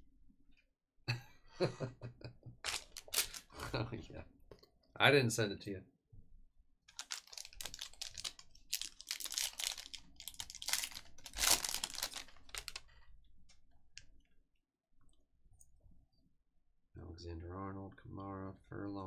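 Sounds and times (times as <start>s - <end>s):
card pack wrapper tearing: 2.7s - 3.5s, 6.9s - 12.8s.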